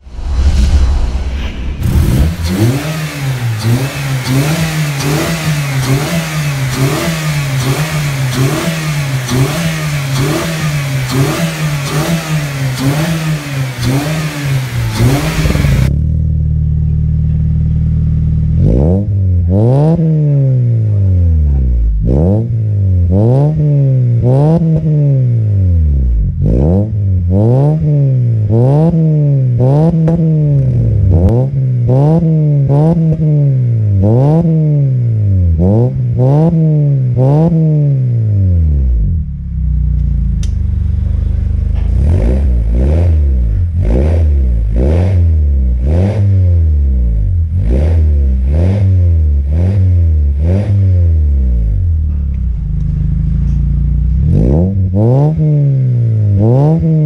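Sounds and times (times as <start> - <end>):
car engine revving: 0.0 - 57.0
car engine idling: 39.2 - 42.8, 51.7 - 54.4.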